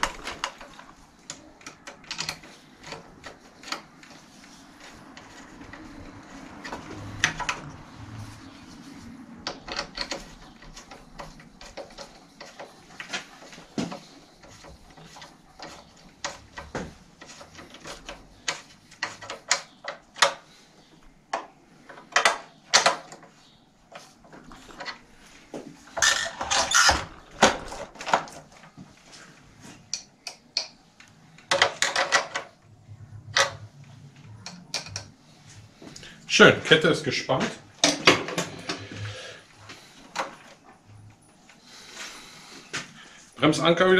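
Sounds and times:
hand tools clicking on metal: 0.0s - 7.8s, 9.4s - 20.5s.

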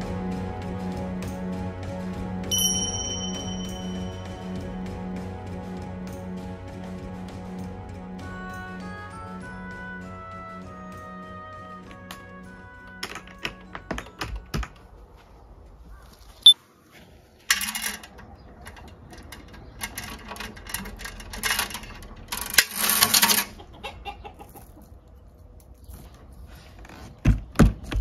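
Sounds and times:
small metal chain rattling: 2.5s - 4.6s, 17.5s - 23.6s
chain lock clicks: 17.5s - 23.5s.

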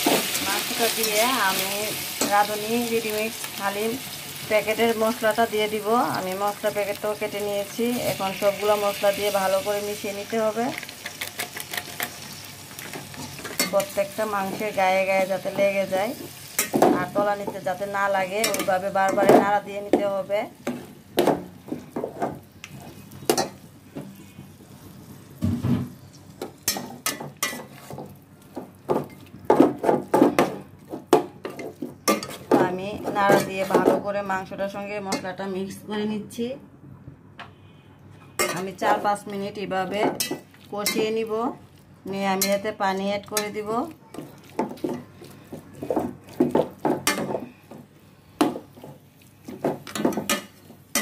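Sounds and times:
spatula knocking and scraping pot: 26.4s - 34.2s, 42.3s - 51.0s
spatula scraping and knocking pot: 43.4s - 51.0s.

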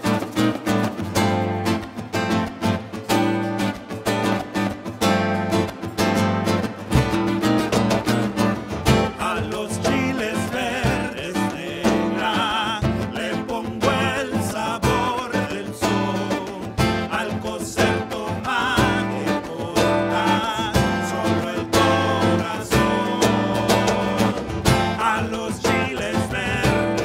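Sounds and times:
cajon strokes: 0.0s - 27.0s
strummed acoustic guitars: 0.0s - 27.0s
men singing with vibrato: 8.8s - 27.0s.

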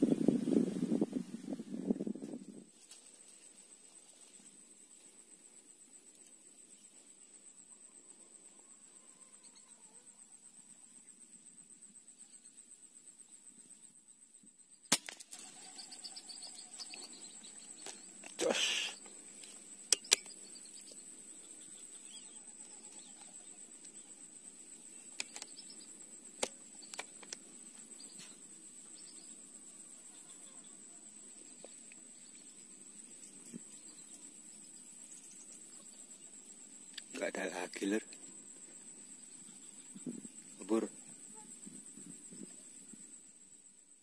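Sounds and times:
insects droning: 0.0s - 44.0s
sharp clicks: 19.9s - 20.4s.

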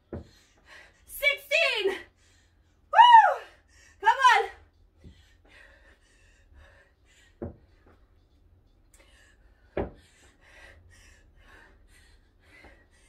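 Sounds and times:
dull thumps: 9.7s - 10.0s.

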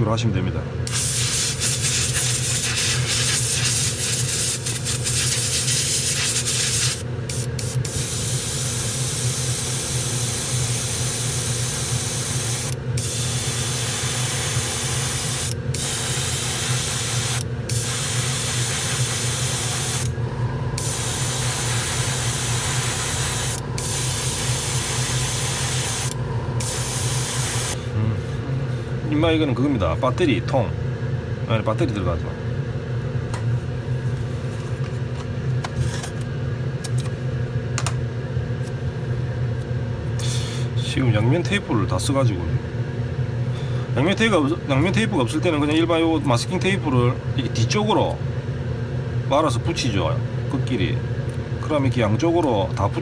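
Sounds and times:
steady low hum: 0.0s - 53.0s
airbrush spraying: 0.9s - 20.1s, 20.8s - 27.8s.

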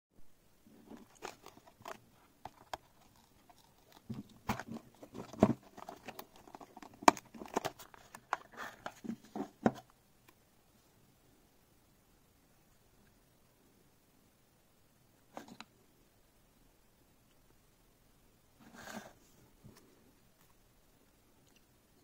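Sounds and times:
cardboard and plastic rubbing: 0.7s - 9.9s
box clicks and knocks: 4.0s - 9.9s.

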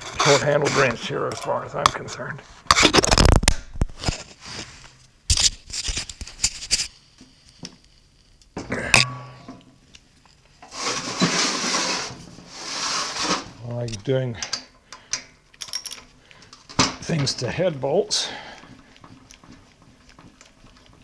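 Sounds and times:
rubbing scrape: 0.0s - 1.1s, 4.0s - 5.0s, 10.6s - 13.6s
metal tools clinking and knocking: 15.5s - 16.1s.

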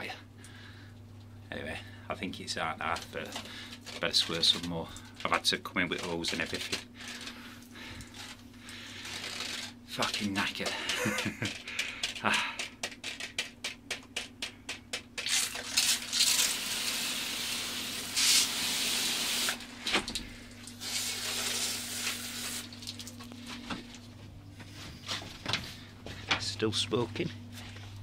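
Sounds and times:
faint steady hum: 0.0s - 28.0s
hose nozzle spraying water: 15.2s - 19.6s, 20.7s - 23.0s.

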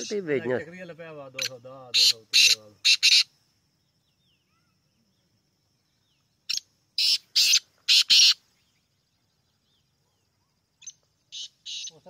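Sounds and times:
bird calling harsh notes: 0.0s - 0.3s, 1.3s - 3.4s, 6.5s - 8.6s, 10.8s - 12.0s.

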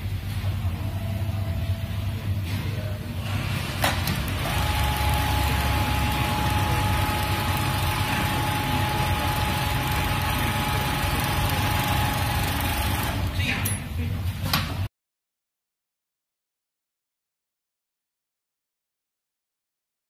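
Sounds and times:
sewing machine running: 3.3s - 13.4s.

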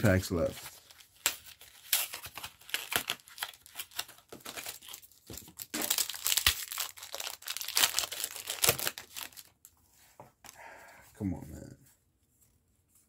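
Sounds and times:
wrapper tearing and crinkling: 0.7s - 9.6s.

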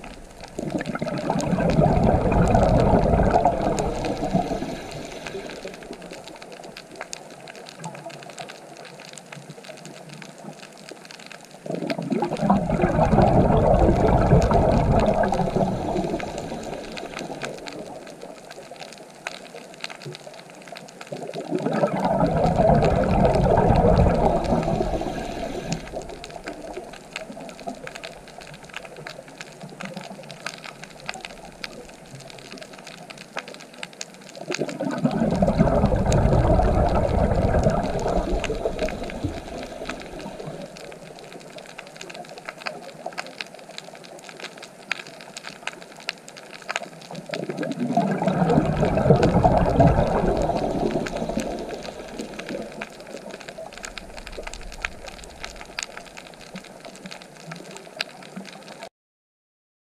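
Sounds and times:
underwater rushing bubbling swell: 0.0s - 7.0s, 11.7s - 18.7s, 21.1s - 32.6s, 34.4s - 41.7s, 47.1s - 57.1s.

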